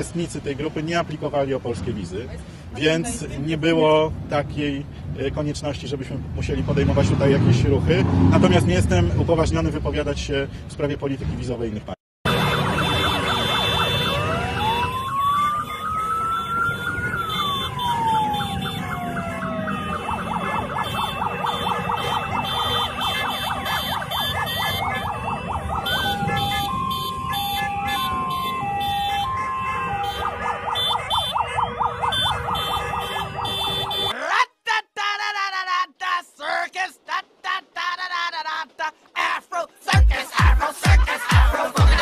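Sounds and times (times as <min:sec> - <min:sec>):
two-tone hi-lo siren: 0:12.3 - 0:34.1
wailing siren: 0:12.3 - 0:34.1
yelping siren: 0:12.3 - 0:34.1.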